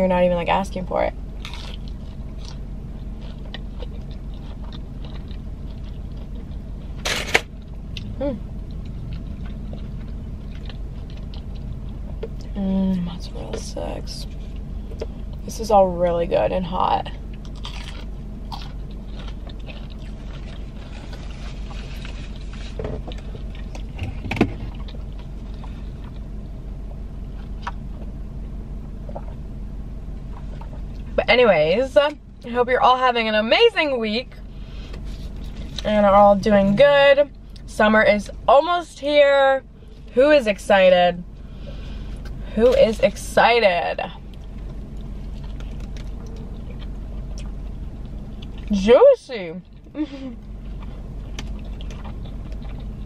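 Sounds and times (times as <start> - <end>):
low car cabin hum: 0.0 - 53.0
chewing fried food: 1.4 - 12.6, 17.2 - 26.6, 44.2 - 48.7, 49.6 - 53.0
mouth and eating sounds: 17.4 - 26.3, 49.6 - 53.0.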